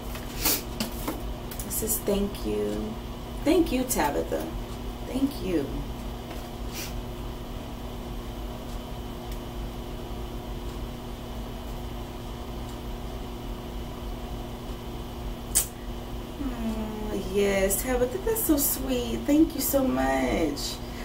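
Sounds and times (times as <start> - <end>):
low room hum: 0.0 - 21.0
short click: 15.5 - 15.8.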